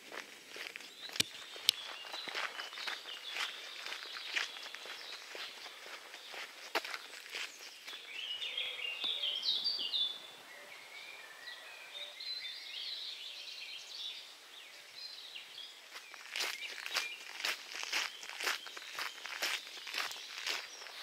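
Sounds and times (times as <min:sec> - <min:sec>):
footsteps on dirt track: 0:00.0 - 0:09.4, 0:15.6 - 0:21.0
songbirds singing: 0:00.0 - 0:21.0.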